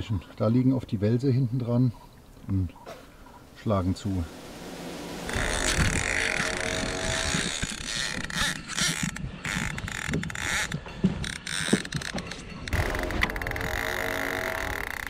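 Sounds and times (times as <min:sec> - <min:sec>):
fishing reel ratchet clicking: 0:05.3 - 0:15.0
fishing reel whirring: 0:05.3 - 0:15.0.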